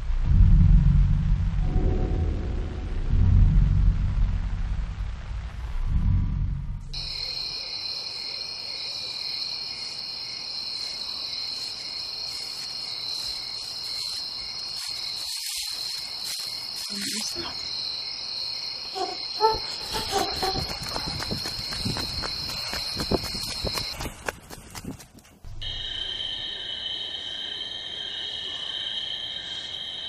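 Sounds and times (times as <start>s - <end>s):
crickets chirping: 6.9s - 24.4s, 25.5s - 30.0s.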